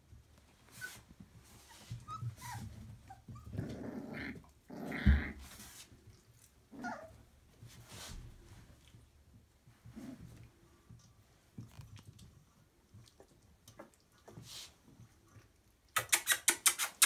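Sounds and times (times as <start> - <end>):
puppies squeaking and yipping: 0.6 - 3.7, 16.0 - 17.0
puppies growling: 2.2 - 5.6, 6.6 - 7.2.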